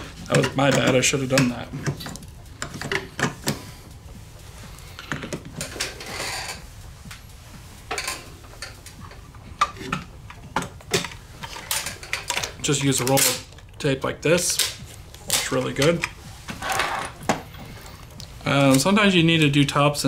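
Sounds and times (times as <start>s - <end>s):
rubbing or scraping: 4.4s - 10.0s.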